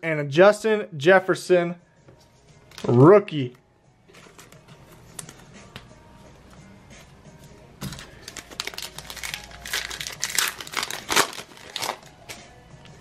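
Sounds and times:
faint beat music: 0.0 - 13.0
cellophane wrapper crinkling: 7.9 - 12.4.

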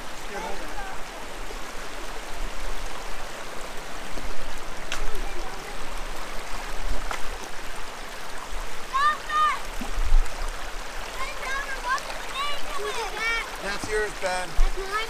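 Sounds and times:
creek water rushing over rocks: 0.0 - 15.0
faint clicks: 4.8 - 5.2.

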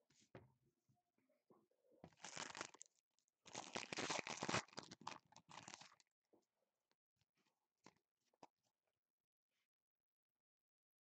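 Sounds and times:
plastic wrapping crinkling: 2.1 - 2.9, 3.5 - 6.0
plastic wrapping tearing: 2.2 - 2.8, 3.5 - 6.0.

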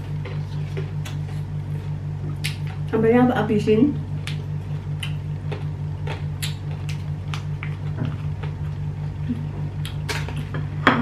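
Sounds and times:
steady low hum: 0.0 - 11.0
eating sounds: 4.1 - 10.5.

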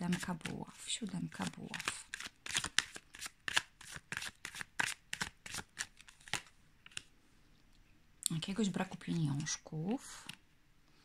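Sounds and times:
cards being shuffled: 0.0 - 0.6, 1.2 - 7.1, 9.1 - 10.4.

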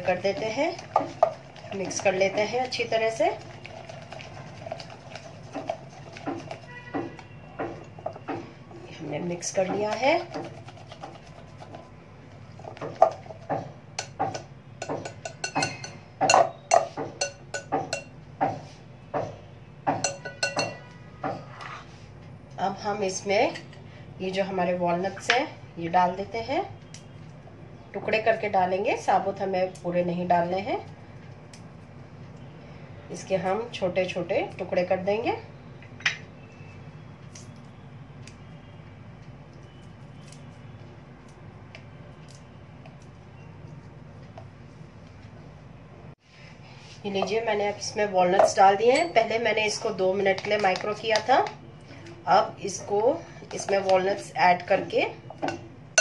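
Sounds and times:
whisk stirring thick mixture: 0.0 - 7.2, 9.8 - 13.5
whisk clinking against glass bowl: 14.8 - 18.1, 20.0 - 20.9.

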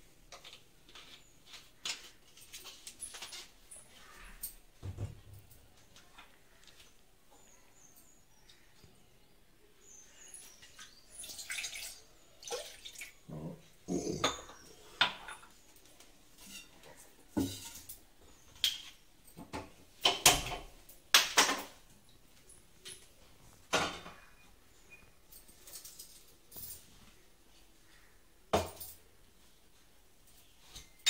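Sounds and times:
saucepan and cups clinking: 14.0 - 15.6.

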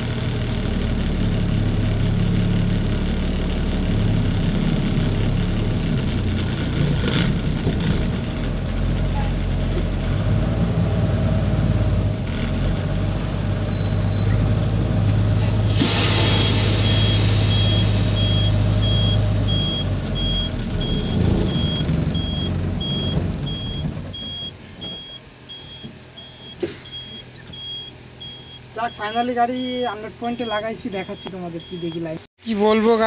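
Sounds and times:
truck diesel engine running: 0.0 - 32.3
air hiss burst: 15.6 - 19.5
reversing alarm beeping: 15.8 - 32.2.

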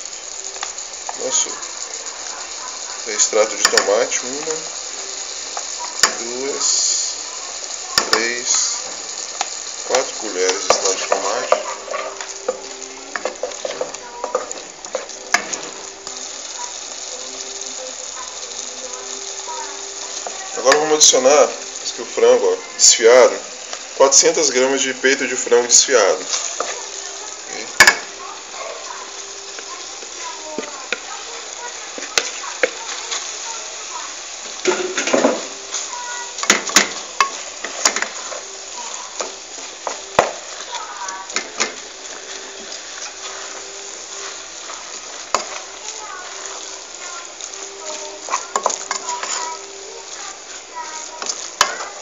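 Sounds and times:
sauce sizzling: 0.0 - 52.0
wooden spoon scraping a pot: 10.0 - 16.4, 39.6 - 52.0.

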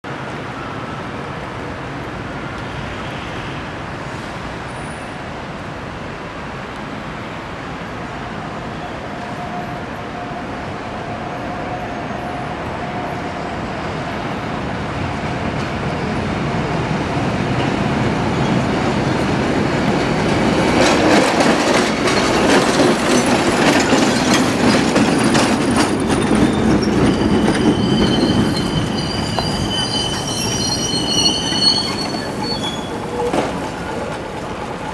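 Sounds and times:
electric railcar running: 8.0 - 34.9
wheels clattering over rails: 19.8 - 34.9
wheels squealing: 20.0 - 34.9.

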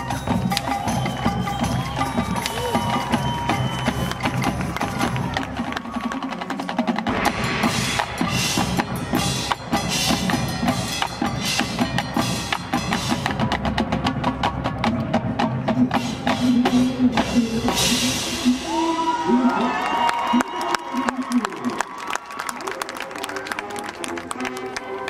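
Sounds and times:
marching band drums: 0.0 - 18.9.

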